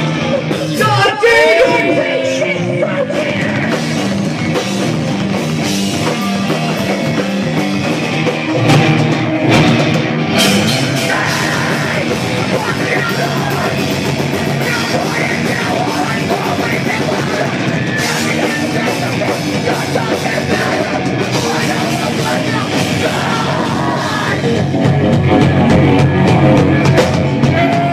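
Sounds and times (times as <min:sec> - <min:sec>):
bass guitar: 0:00.0 - 0:27.9
distorted guitars: 0:00.0 - 0:27.9
drums: 0:00.0 - 0:27.9
person singing into a microphone: 0:00.3 - 0:04.2, 0:10.7 - 0:24.7.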